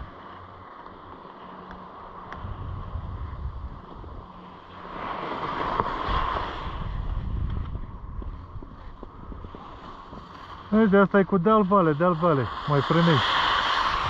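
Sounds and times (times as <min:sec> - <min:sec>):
skis scraping on snow: 0:00.0 - 0:14.0
wind buffeting microphone: 0:02.4 - 0:11.0.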